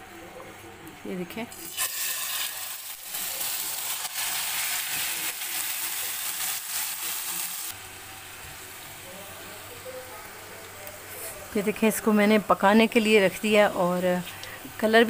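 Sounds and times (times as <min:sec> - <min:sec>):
chicken sizzling in hot oil: 0:01.5 - 0:09.9.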